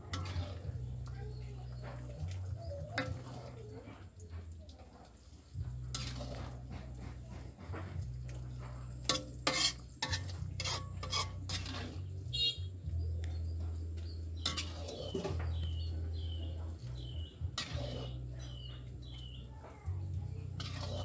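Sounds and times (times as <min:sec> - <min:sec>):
ladle scraping a steel pot: 0:00.0 - 0:04.2, 0:05.2 - 0:12.6, 0:14.3 - 0:16.3, 0:17.0 - 0:19.4, 0:20.4 - 0:21.0
birds chirping: 0:12.0 - 0:19.6.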